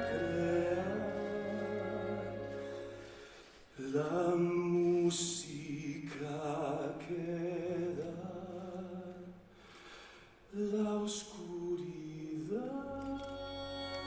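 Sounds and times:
quiet orchestral accompaniment: 0:00.0 - 0:03.6, 0:13.0 - 0:14.0
man singing with vibrato: 0:00.0 - 0:09.4, 0:10.5 - 0:14.0.

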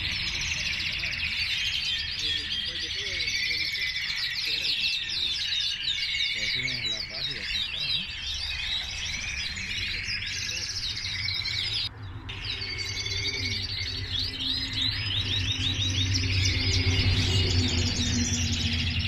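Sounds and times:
canaries singing and chirping: 0:00.0 - 0:19.0.

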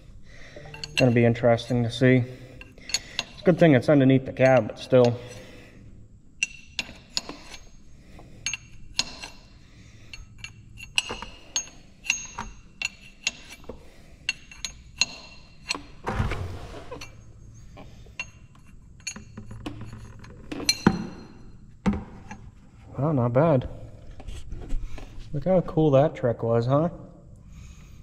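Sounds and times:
wrench clinking on metal plug: 0:00.6 - 0:02.0, 0:02.6 - 0:03.7, 0:06.4 - 0:07.6, 0:08.4 - 0:09.4, 0:10.1 - 0:13.7, 0:18.2 - 0:21.4.

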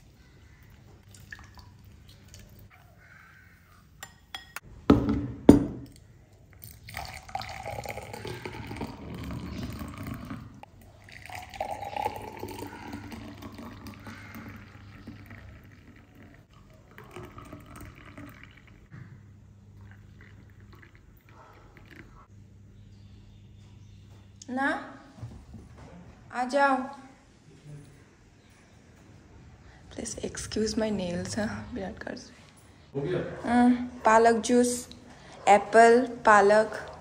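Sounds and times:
juice pouring into glass: 0:06.6 - 0:18.9, 0:19.8 - 0:22.2.

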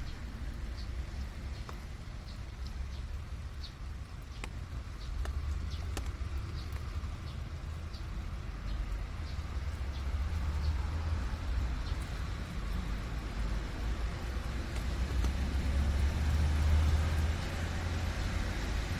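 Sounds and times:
passing vehicle rumble: 0:04.8 - 0:18.9.

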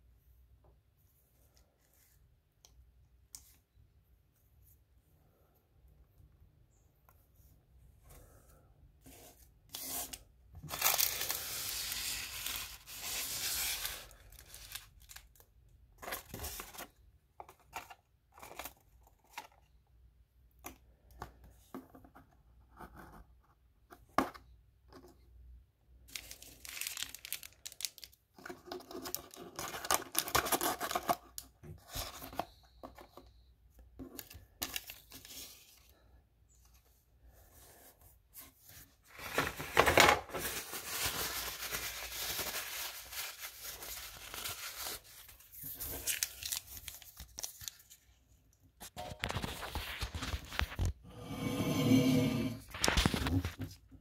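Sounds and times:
foil wrapper crinkling: 0:10.6 - 0:15.5, 0:26.1 - 0:28.2, 0:39.2 - 0:48.0.

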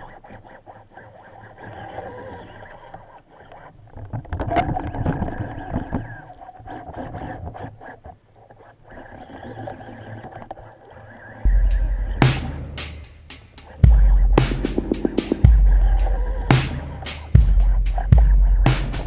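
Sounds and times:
faint clicks: 0:00.0 - 0:19.0
underwater boat engine drone: 0:13.7 - 0:17.0.

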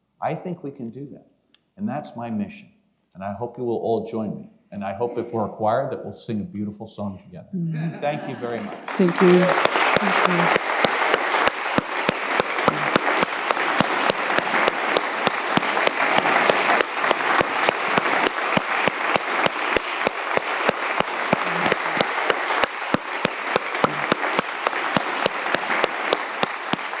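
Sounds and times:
audience applauding: 0:08.0 - 0:27.0
person clapping close by: 0:08.9 - 0:27.0.

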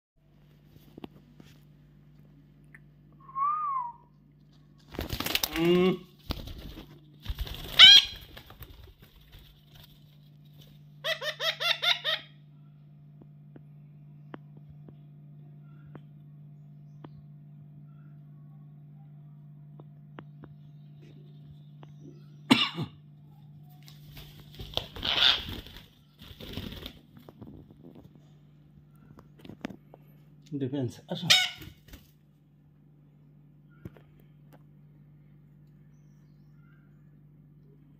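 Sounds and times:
steady low hum: 0:00.2 - 0:37.9
parakeets squawking: 0:07.6 - 0:08.4, 0:11.0 - 0:12.4, 0:24.7 - 0:25.9, 0:31.1 - 0:31.8.

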